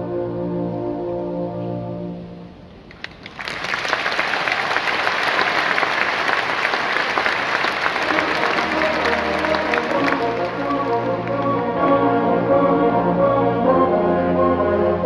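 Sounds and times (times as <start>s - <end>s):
audience applauding: 2.9s - 11.6s
brass band playing: 7.9s - 15.0s.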